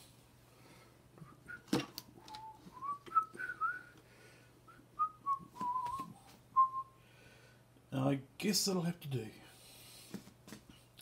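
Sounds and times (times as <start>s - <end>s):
person whistling a tune: 1.2s - 3.9s, 4.7s - 7.0s.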